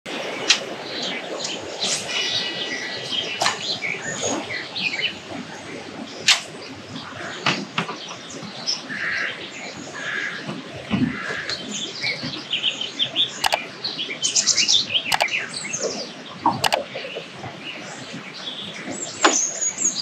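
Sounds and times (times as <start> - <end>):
sharp clicks: 13.4 - 13.6, 16.6 - 16.8.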